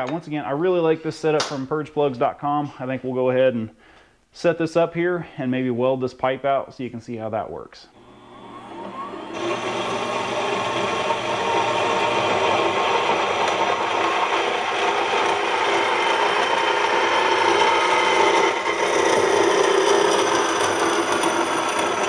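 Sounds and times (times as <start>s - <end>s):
band saw cutting metal: 8.0s - 22.0s.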